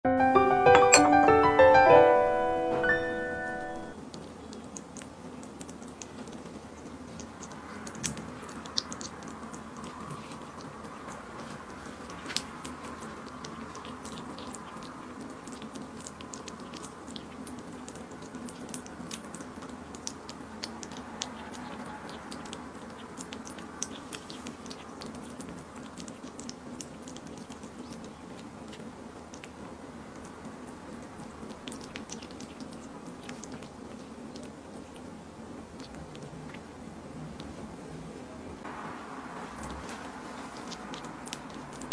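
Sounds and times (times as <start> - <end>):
piano tune: 0.0 - 4.0
kitten chewing and licking: 3.7 - 41.9.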